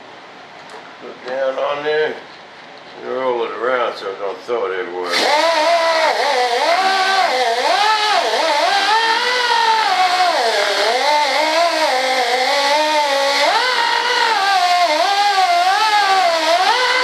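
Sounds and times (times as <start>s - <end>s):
power tool motor whine: 5.1s - 17.0s.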